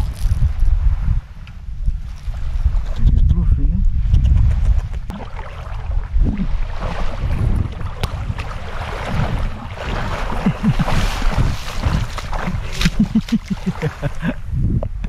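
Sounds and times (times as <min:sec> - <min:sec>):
wind buffeting microphone: 0:00.0 - 0:15.0
seawater splashing around legs: 0:05.1 - 0:14.2.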